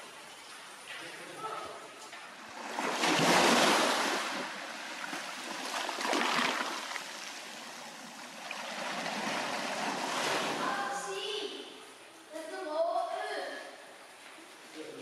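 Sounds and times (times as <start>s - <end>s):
waves breaking on rocks: 2.5s - 11.1s.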